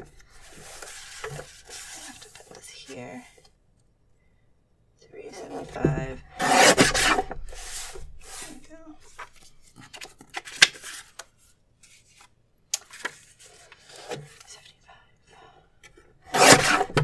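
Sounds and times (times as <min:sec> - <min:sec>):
paper rustling and sliding: 0:00.0 - 0:02.6, 0:06.4 - 0:14.4
paper cutter blade chop: 0:16.3 - 0:17.0.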